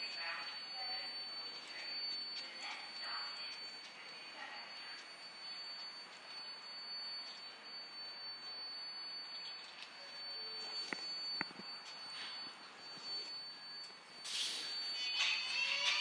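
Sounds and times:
high-pitched train whine: 0:00.0 - 0:16.0.

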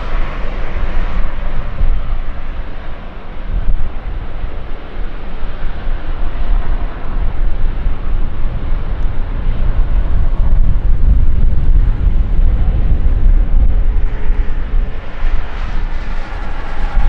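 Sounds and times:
jet engines on takeoff: 0:00.0 - 0:17.0.

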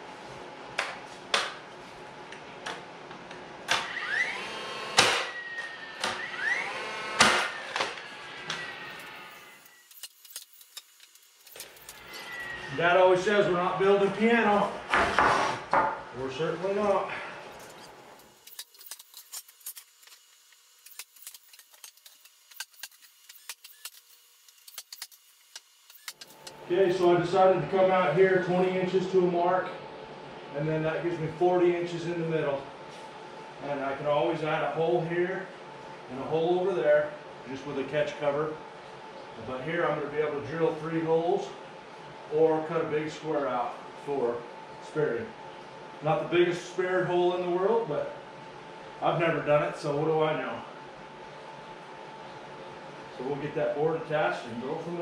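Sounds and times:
nailer motor whining: 0:03.7 - 0:12.7
nail gun firing bangs: 0:05.0 - 0:05.4, 0:07.2 - 0:07.9.

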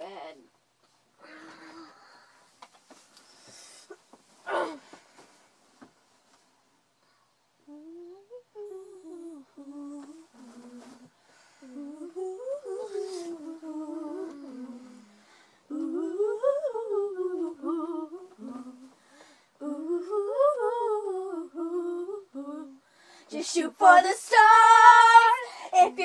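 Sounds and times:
girl humming a tune: 0:07.6 - 0:19.0.

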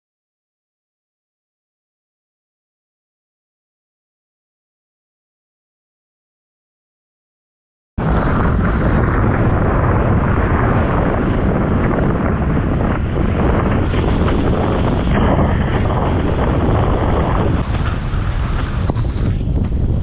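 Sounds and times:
wind buffeting microphone: 0:08.0 - 0:20.0.

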